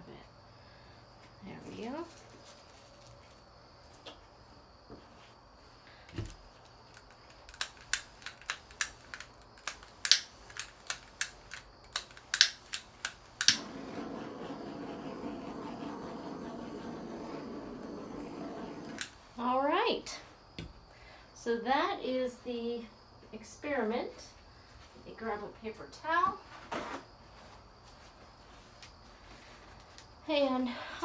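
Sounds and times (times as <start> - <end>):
torch igniter clicking: 6.9 - 19.2
torch flame hissing: 13.4 - 19.4.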